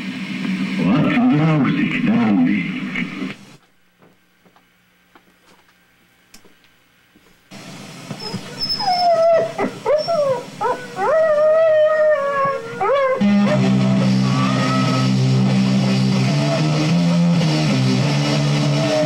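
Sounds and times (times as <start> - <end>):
dogs howling: 8.2 - 15.3, 18.5 - 19.0.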